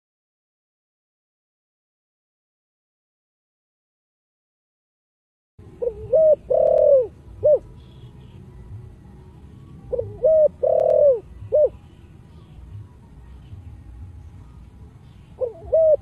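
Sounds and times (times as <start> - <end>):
dove cooing: 5.8 - 8.4, 9.8 - 11.9, 15.3 - 16.0.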